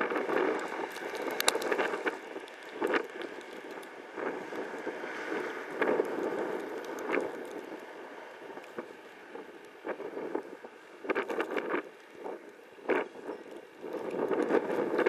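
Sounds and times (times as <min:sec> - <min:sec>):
wind buffeting microphone: 0:00.0 - 0:15.0
sharp ticks: 0:00.3 - 0:04.9.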